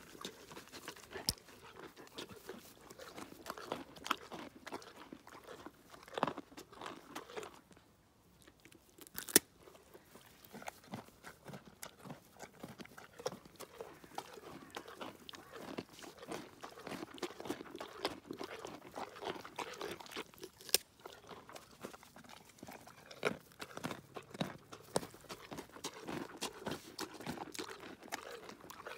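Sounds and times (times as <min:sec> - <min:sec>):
pony chewing carrots: 0:00.0 - 0:28.9.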